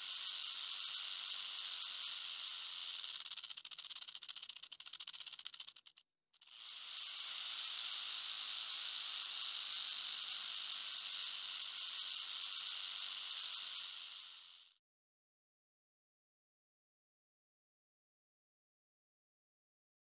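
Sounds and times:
rattlesnake rattling: 0:00.0 - 0:14.8.

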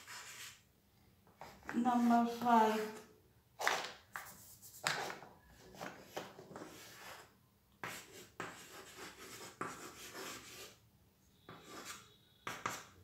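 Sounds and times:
chalk scratching on chalkboard: 0:00.0 - 0:00.6, 0:03.6 - 0:10.8, 0:11.4 - 0:13.0.

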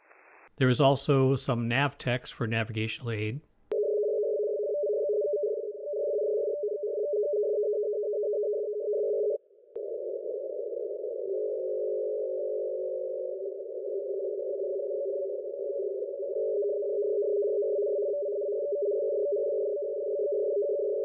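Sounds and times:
radio hiss: 0:00.0 - 0:00.5
two-tone data signal warble: 0:03.8 - 0:21.0.

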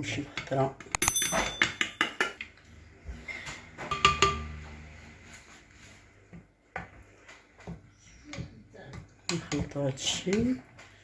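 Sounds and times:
dishes clinking: 0:01.0 - 0:02.4, 0:03.9 - 0:04.6.

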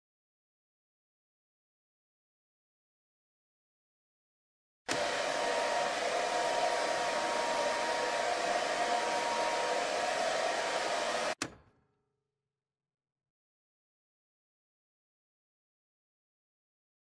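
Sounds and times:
hair dryer blowing: 0:04.9 - 0:11.4.

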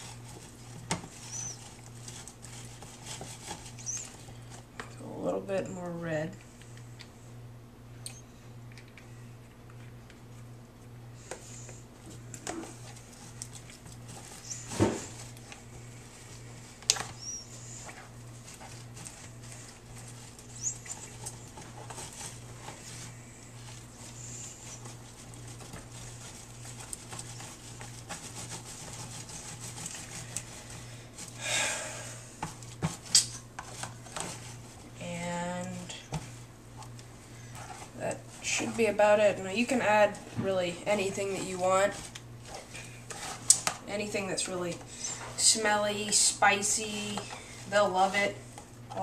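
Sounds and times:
spatula scraping paste in tub: 0:00.0 - 0:04.2, 0:17.0 - 0:31.4
low steady hum: 0:00.0 - 0:49.0.

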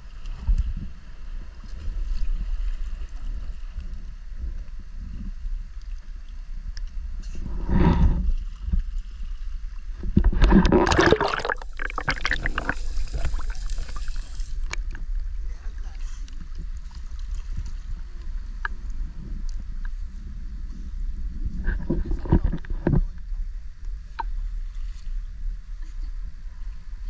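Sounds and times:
muffled underwater hiss: 0:07.1 - 0:17.0
water splashing and sloshing: 0:08.3 - 0:15.1, 0:16.3 - 0:18.3
loud rush of water: 0:10.6 - 0:14.4.

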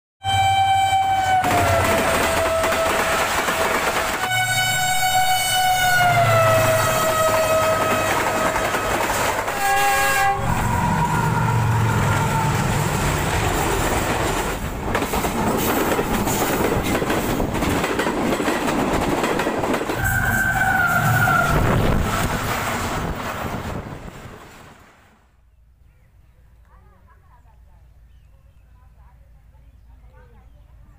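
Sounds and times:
locomotive horn blasts: 0:00.2 - 0:12.8, 0:20.0 - 0:22.3
train wheels clattering on rails: 0:01.4 - 0:05.0, 0:07.0 - 0:10.4, 0:12.8 - 0:24.8.

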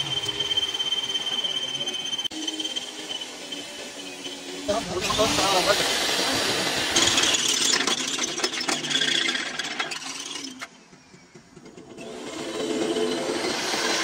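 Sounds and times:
machinery clattering and clicking: 0:03.2 - 0:14.0.

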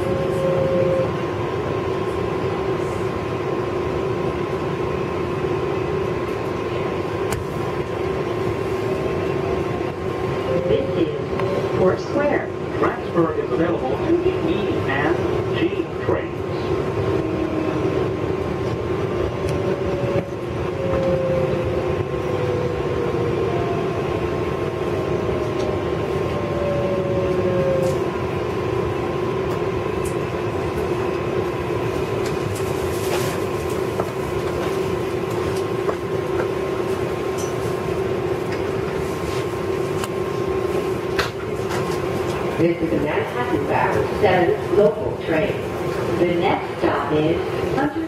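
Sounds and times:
train whine falling in pitch: 0:00.0 - 0:01.2, 0:19.3 - 0:24.0, 0:25.0 - 0:28.2
subway car rumble: 0:00.0 - 0:48.0.

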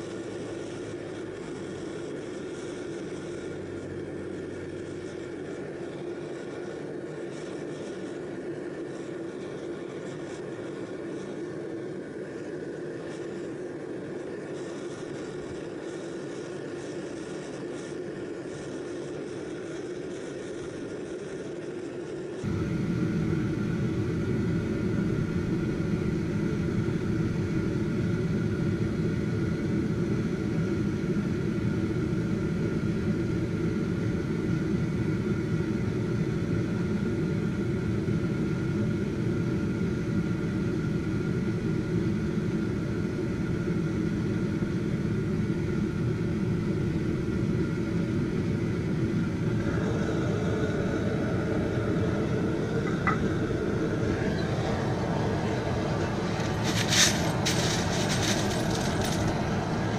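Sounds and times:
faint motor whine: 0:00.0 - 0:59.9
air blower rushing roar: 0:22.4 - 0:31.0, 0:49.2 - 0:59.9.

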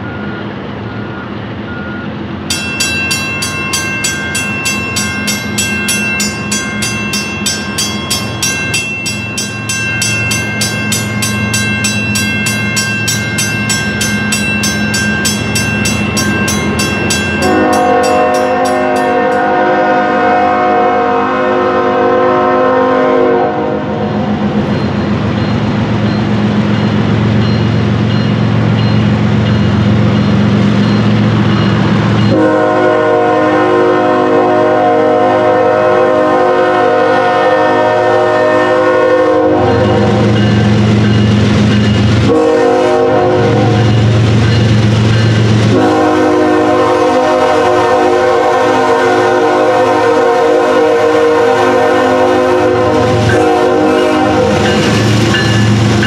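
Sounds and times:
locomotive air horn blasts: 0:17.4 - 0:24.2, 0:32.3 - 0:40.4, 0:42.3 - 0:44.0, 0:45.7 - 0:54.8.

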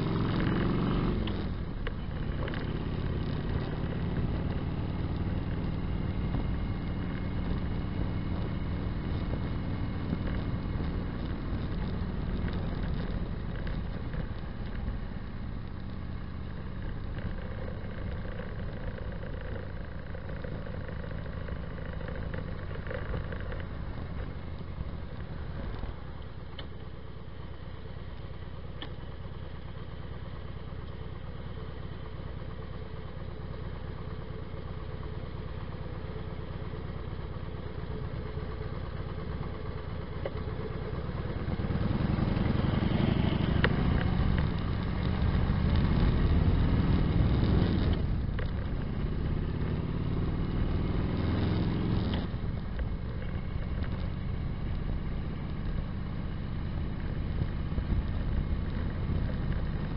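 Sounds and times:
motorcycle exhaust rumble: 0:00.0 - 0:59.9.

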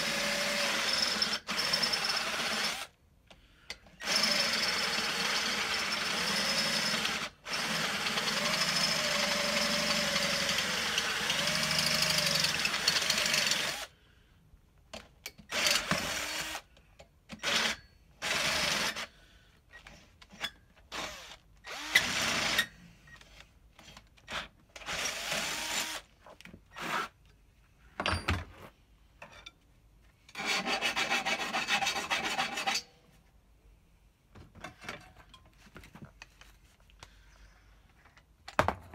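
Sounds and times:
cordless drill boring into metal: 0:00.0 - 0:02.9, 0:04.0 - 0:13.9, 0:15.5 - 0:16.7, 0:17.4 - 0:19.1, 0:20.3 - 0:23.4, 0:24.3 - 0:26.1.

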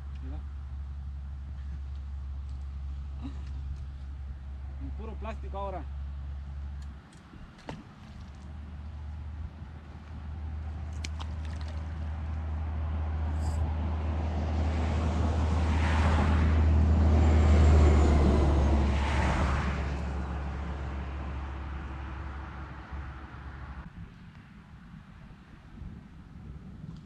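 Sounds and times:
large vehicle passing rumble: 0:08.4 - 0:23.9.

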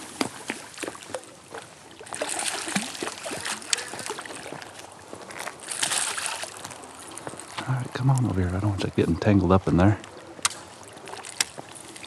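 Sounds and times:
fish splashing in water: 0:00.0 - 0:07.7, 0:10.1 - 0:12.0.

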